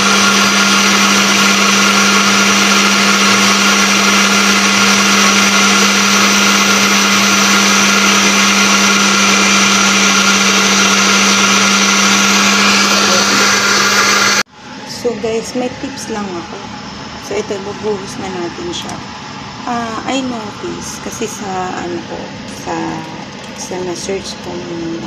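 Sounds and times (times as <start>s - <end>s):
blender running: 0.0s - 25.0s.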